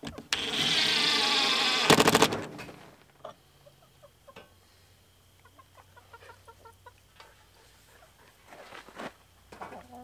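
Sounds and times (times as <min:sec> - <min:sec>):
chickens clucking: 0:03.1 - 0:08.5, 0:09.6 - 0:10.0.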